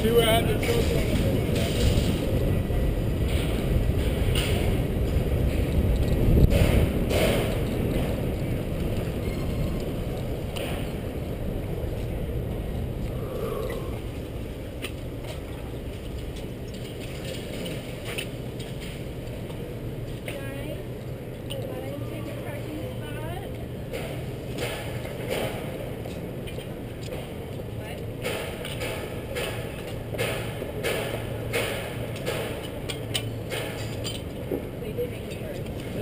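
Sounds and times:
tyres rumbling on brick pavers: 0:00.0 - 0:20.4.

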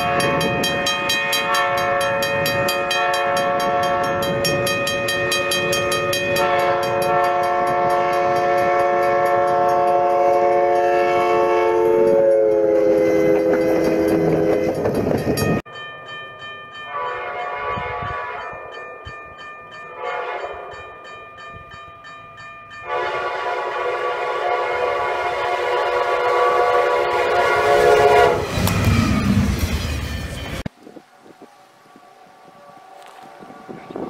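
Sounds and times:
train horn blasts: 0:00.0 - 0:04.7, 0:05.8 - 0:15.1, 0:16.9 - 0:18.8, 0:19.9 - 0:21.0, 0:22.8 - 0:28.9
train rushing past: 0:00.0 - 0:15.6, 0:22.9 - 0:34.0
crossing bell ringing: 0:00.0 - 0:30.7.

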